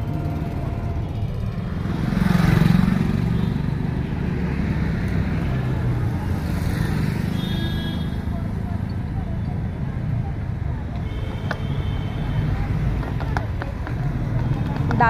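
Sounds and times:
road traffic rumble: 0:00.0 - 0:15.0
vehicle passing: 0:01.6 - 0:07.2.

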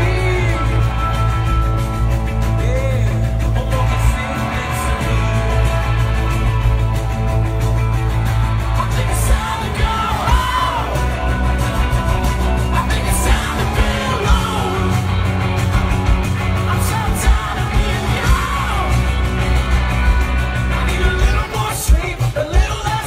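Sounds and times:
person singing and yelling: 0:00.0 - 0:07.0, 0:08.1 - 0:15.6, 0:16.4 - 0:19.6
live rock band through pa: 0:00.0 - 0:23.0.

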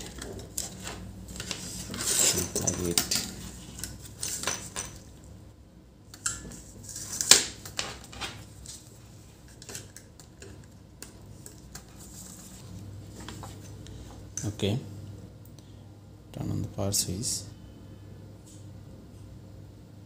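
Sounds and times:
clicks and metallic clatter: 0:00.0 - 0:05.1.

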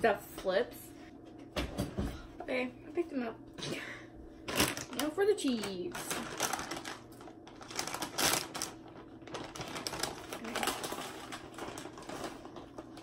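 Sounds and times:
plastic bag crinkling: 0:04.4 - 0:13.0.

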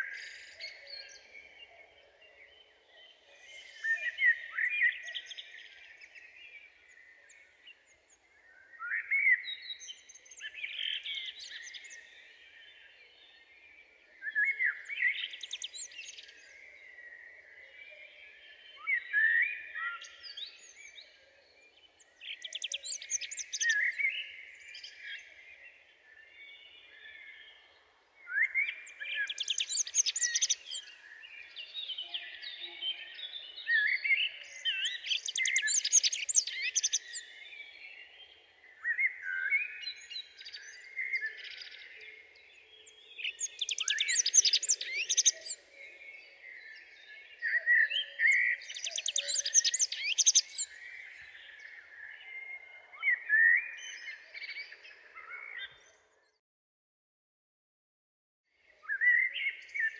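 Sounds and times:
songbird warbling and trilling: 0:22.2 - 0:24.2, 0:28.3 - 0:30.9, 0:34.4 - 0:37.3, 0:43.1 - 0:45.7, 0:47.4 - 0:51.6.

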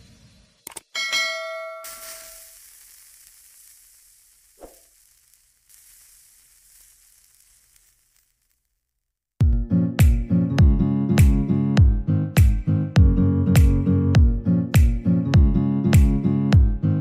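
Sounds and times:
batter sizzling in pan: 0:01.8 - 0:08.8.

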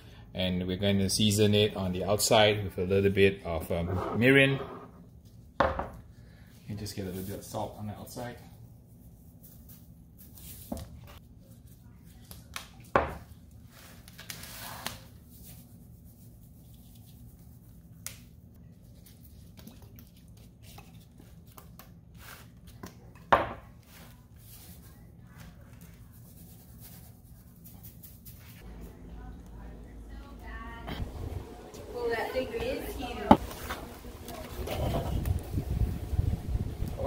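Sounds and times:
bottles knocking on counter: 0:05.6 - 0:06.0
faint low hum: 0:24.1 - 0:37.0.

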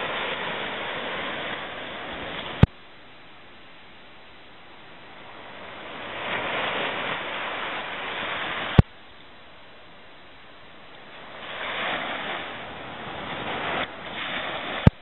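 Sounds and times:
low steady hiss: 0:00.0 - 0:15.0
surf washing up beach: 0:00.0 - 0:15.0.

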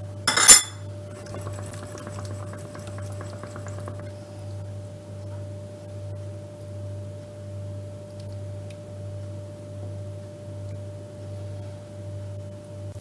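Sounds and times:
low electrical hum: 0:00.0 - 0:13.0
spoon clicking on glass dish: 0:00.3 - 0:00.8.

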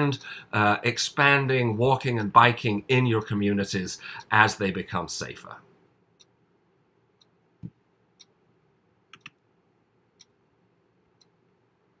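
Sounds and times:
clock ticking: 0:06.1 - 0:06.4, 0:07.2 - 0:08.5, 0:10.1 - 0:10.5, 0:11.1 - 0:11.5.

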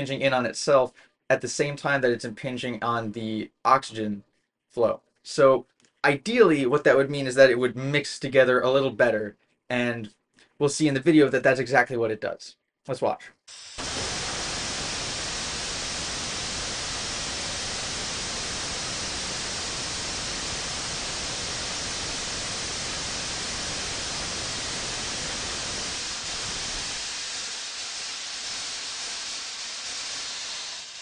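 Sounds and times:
rocket engine rushing noise: 0:13.5 - 0:31.0.

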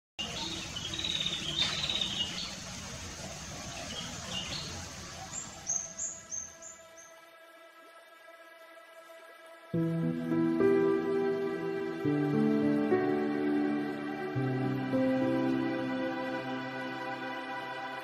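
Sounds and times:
soft sustained music: 0:00.2 - 0:02.6, 0:03.6 - 0:18.0
birds chirping: 0:00.2 - 0:07.4
water rushing: 0:00.2 - 0:18.0.

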